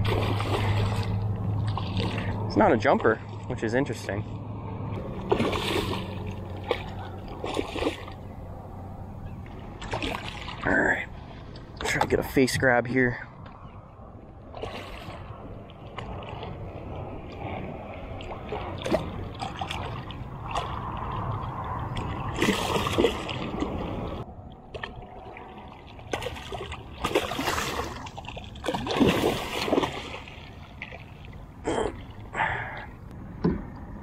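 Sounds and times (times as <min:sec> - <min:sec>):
fish splashing water: 0:00.0 - 0:02.5, 0:05.0 - 0:10.6, 0:14.5 - 0:32.3.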